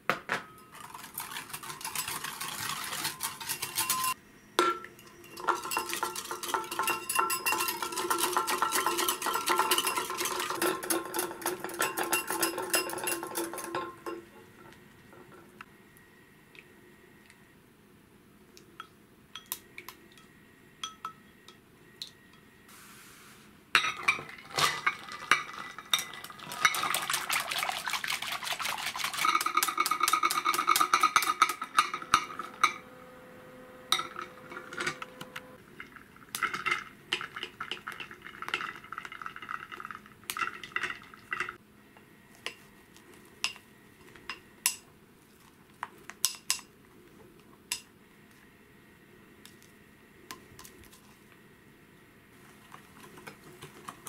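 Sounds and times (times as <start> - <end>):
whisk clinking in glass bowl: 0.4 - 14.2, 23.8 - 32.8.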